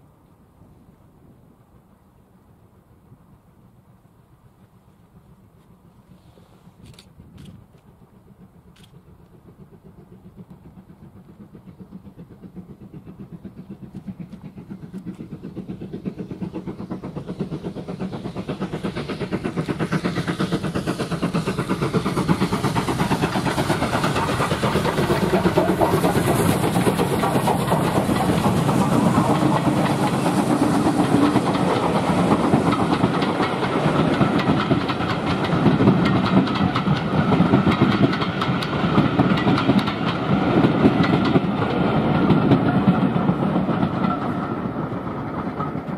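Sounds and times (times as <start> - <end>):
steam train approaching: 0.0 - 45.9.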